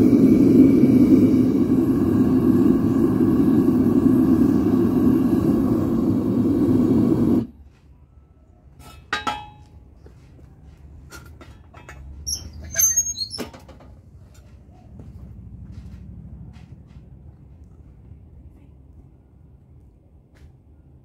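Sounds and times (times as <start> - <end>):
furnace burner rumbling: 0.0 - 7.6, 11.1 - 19.8
metal clinks and knocks: 11.1 - 12.7.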